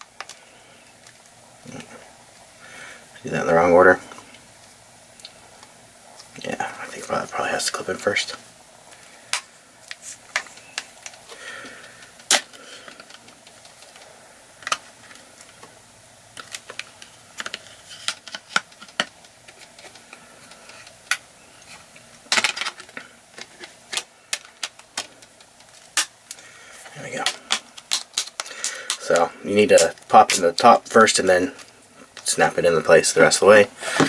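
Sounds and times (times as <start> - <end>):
plastic clips snapping: 27.2 - 29.2.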